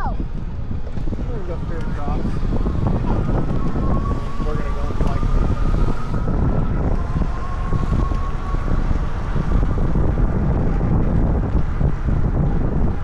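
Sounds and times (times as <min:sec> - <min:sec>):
wind buffeting microphone: 0:00.0 - 0:13.0
faint thin whine: 0:01.0 - 0:10.8.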